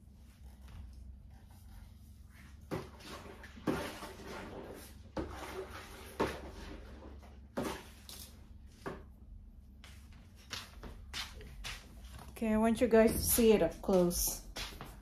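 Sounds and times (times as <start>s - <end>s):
wringer basket spinning water: 2.3s - 8.2s.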